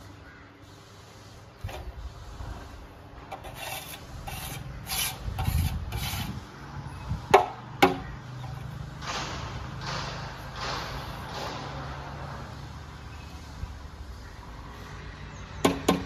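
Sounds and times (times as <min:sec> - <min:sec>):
plastering tool scraping plaster: 0:01.6 - 0:06.4
sharp knocks: 0:09.0 - 0:12.1.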